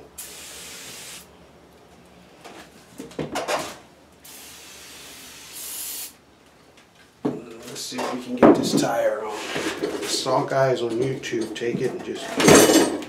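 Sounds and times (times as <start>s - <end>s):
aerosol spray hissing: 0.2s - 1.3s, 4.2s - 6.2s.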